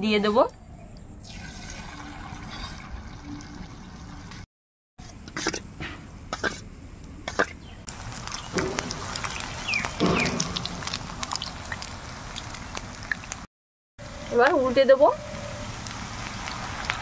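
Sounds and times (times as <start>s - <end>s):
cough-like sound: 6.3s - 6.6s, 7.3s - 7.6s
deep-frying sizzle: 7.9s - 17.0s.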